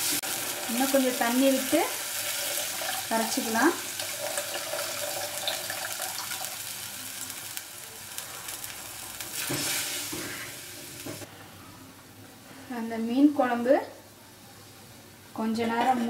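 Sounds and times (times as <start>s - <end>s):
water pouring into sizzling gravy: 0.0s - 7.1s.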